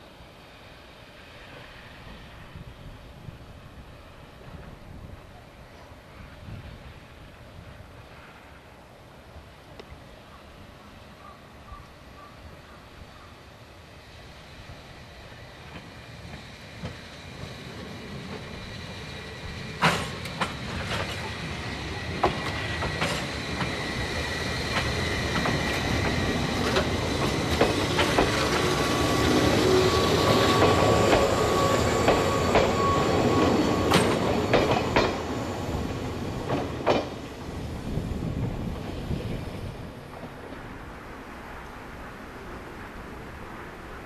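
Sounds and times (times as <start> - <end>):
high-pitched train whine: 0.0 - 44.0
train wheels clacking over rail joints: 19.6 - 35.3, 35.9 - 37.3.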